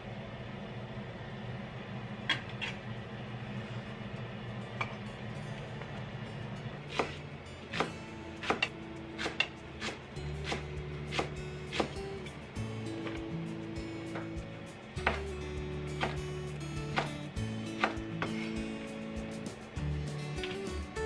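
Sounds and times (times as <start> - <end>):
knife chopping on wooden board: 6.9 - 12.0, 15.0 - 15.3, 16.0 - 16.2, 16.9 - 17.2, 17.8 - 18.4.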